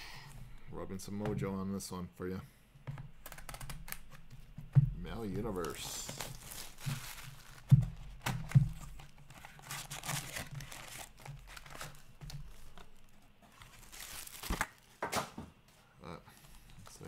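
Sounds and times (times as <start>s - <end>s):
foil packs crinkling: 5.1s - 15.0s.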